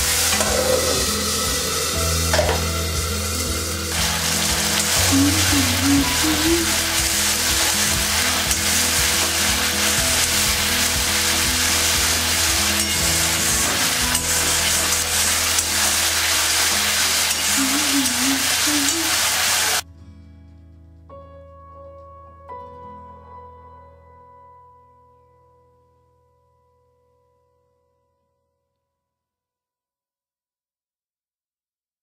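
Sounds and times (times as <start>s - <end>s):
paste sizzling in a pan: 0.0s - 19.8s.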